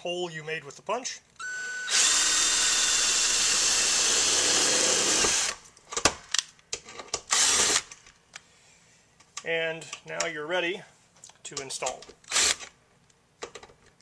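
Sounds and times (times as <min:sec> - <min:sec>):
cordless drill driving screw: 0:01.4 - 0:05.6, 0:07.3 - 0:07.9, 0:12.3 - 0:12.7.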